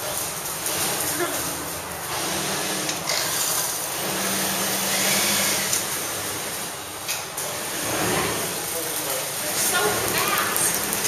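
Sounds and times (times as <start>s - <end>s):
sewing machine motor hum: 0.0s - 8.6s.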